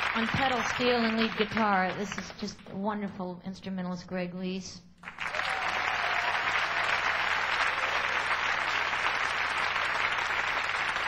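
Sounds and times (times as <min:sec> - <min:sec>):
audience applauding: 0:00.0 - 0:01.8, 0:05.0 - 0:11.0.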